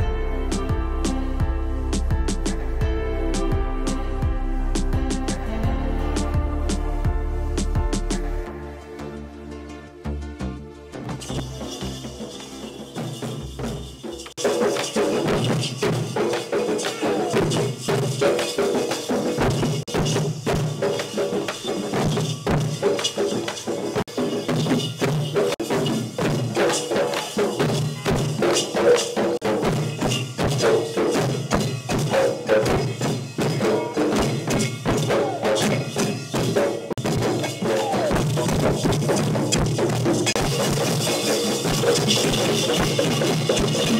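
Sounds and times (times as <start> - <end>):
metal cymbals clashing: 11.2 - 43.9
barrel drums beaten with sticks: 11.4 - 43.9.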